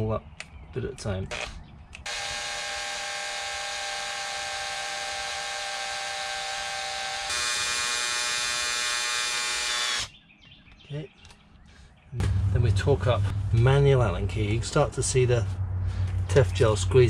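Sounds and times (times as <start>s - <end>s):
cordless drill whining: 1.3s - 10.1s.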